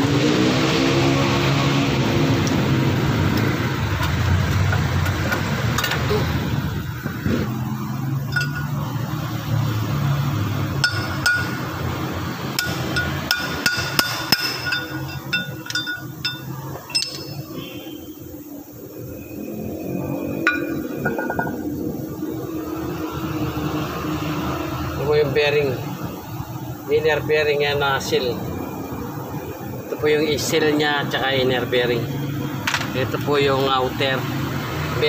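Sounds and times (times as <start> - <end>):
steady low hum: 2.4 - 23.7
hammer striking steel punch: 10.8 - 11.6, 12.6 - 17.4.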